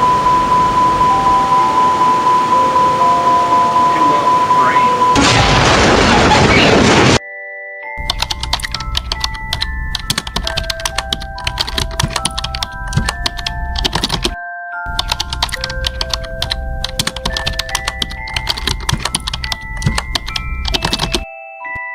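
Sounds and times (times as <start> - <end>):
rapid keyboard typing clicks: 8.0 - 21.2.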